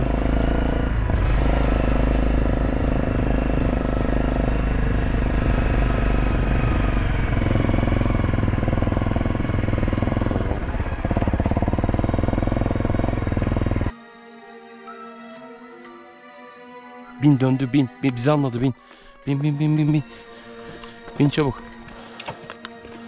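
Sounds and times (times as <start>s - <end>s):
motorcycle engine running: 0.0s - 13.9s.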